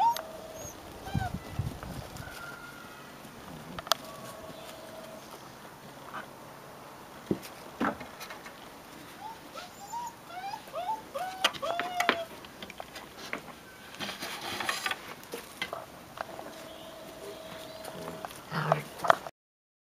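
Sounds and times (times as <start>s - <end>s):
puppies whimpering: 0.0s - 1.5s, 9.2s - 12.3s.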